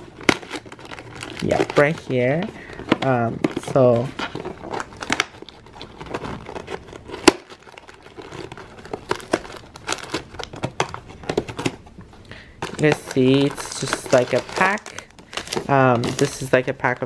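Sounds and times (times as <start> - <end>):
cardboard tearing and crinkling: 0.0 - 11.9, 12.6 - 16.7
sharp cardboard crack: 2.8 - 11.8.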